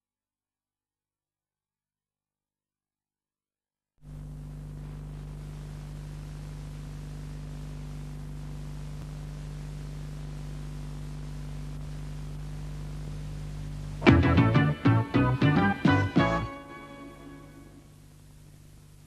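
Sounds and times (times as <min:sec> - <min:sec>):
low electrical hum: 0:04.0 - 0:19.0
tape hiss: 0:04.0 - 0:19.0.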